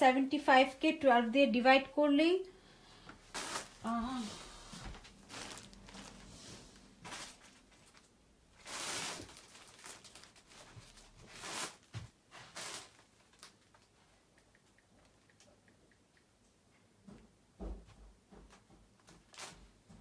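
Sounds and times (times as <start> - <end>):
soft hisses: 3.0 - 7.3
rustling and handling noises: 3.0 - 14.3, 18.4 - 20.0.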